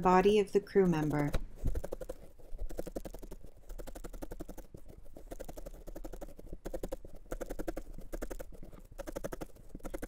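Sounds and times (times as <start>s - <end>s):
felting needles stabbing wool: 0.0s - 10.0s.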